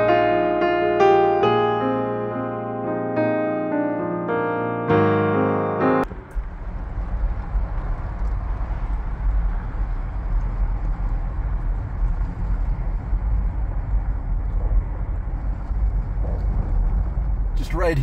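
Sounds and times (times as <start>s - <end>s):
car driving with road noise: 6.0s - 18.0s.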